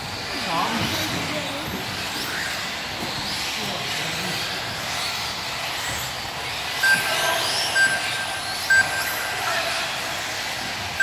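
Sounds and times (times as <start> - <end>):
electric motors whining: 0.0 - 11.0
short electronic beep: 7.8 - 9.2.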